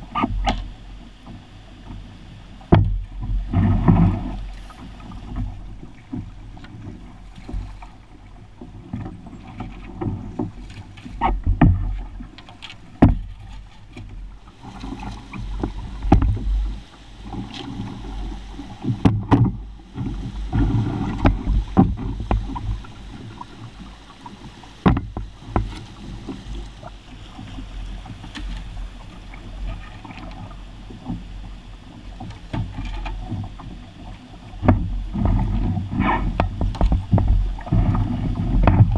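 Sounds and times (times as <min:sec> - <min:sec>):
pole knocking on canoe and rocks: 0:02.7 - 0:08.0, 0:08.7 - 0:26.9, 0:34.6 - 0:38.9
rapids rushing: 0:14.3 - 0:29.4.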